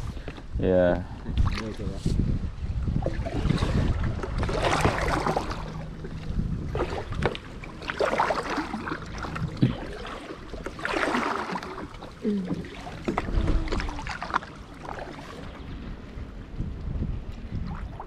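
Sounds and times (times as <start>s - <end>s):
wind buffeting microphone: 0.0s - 10.9s, 11.6s - 18.0s
water sloshing against kayak hulls: 1.2s - 18.0s
paddle stroke splash: 3.0s - 15.7s.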